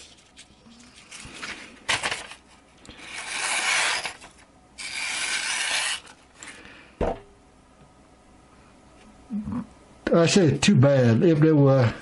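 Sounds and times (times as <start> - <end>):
knife slicing paper: 3.0 - 6.2.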